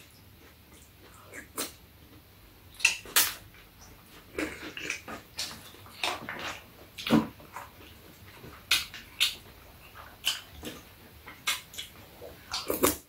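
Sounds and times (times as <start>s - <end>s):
chewing: 2.8s - 13.0s.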